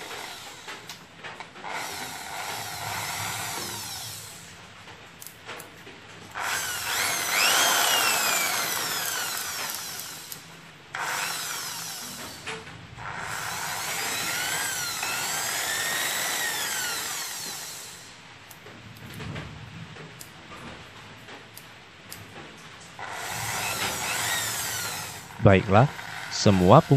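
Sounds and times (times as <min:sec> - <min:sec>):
electric drill motor whining: 0:00.0 - 0:04.6, 0:06.3 - 0:18.2, 0:23.0 - 0:26.9.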